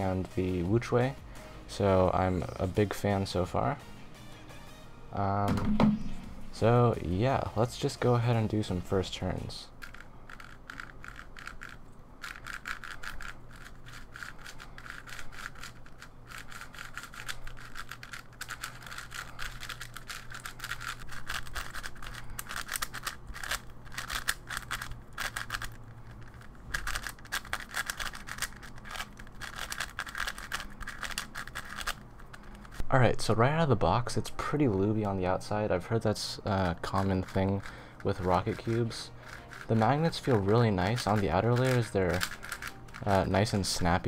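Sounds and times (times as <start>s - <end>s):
puzzle cube clicking and turning: 7.7s - 32.9s, 34.8s - 44.0s.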